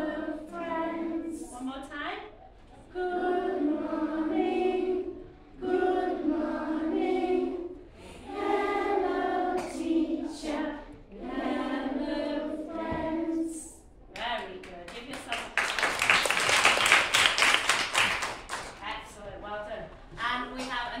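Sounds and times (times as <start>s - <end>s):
children singing together: 0.0s - 1.5s, 2.7s - 13.8s.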